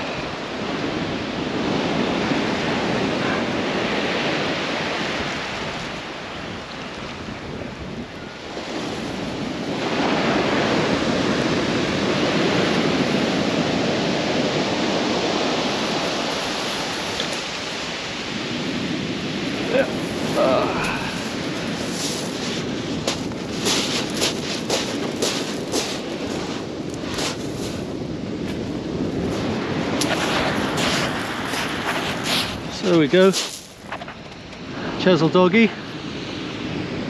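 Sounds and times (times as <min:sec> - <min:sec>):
wind buffeting microphone: 0:00.0 - 0:37.0
surf breaking on shingle: 0:19.5 - 0:27.8, 0:30.0 - 0:34.2.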